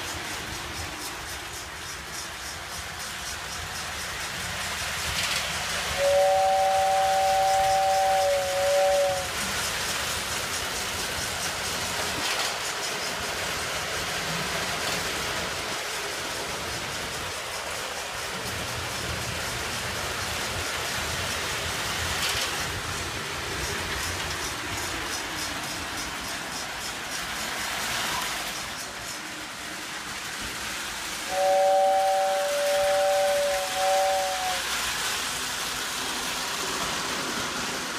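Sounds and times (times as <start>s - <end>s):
toy train wheels and motors rumbling: 0.0s - 37.9s.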